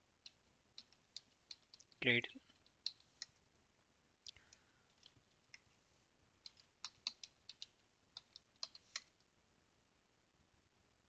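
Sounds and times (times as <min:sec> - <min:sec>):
computer keyboard keystrokes: 0:00.8 - 0:02.0, 0:02.6 - 0:03.3, 0:06.4 - 0:09.1.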